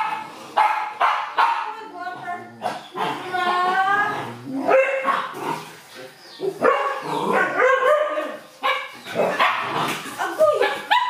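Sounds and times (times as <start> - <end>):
dogs barking and yipping: 0.0 - 11.0.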